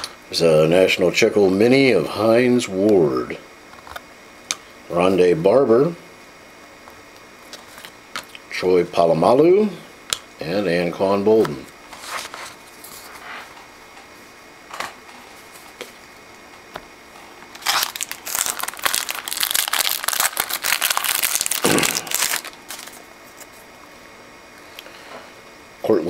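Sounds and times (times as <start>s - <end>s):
wrapper crinkling: 17.5s - 23.6s.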